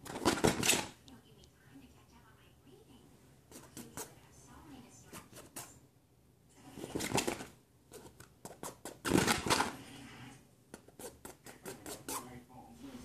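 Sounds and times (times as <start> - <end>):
fingernails scratching fabric: 10.7 - 12.4.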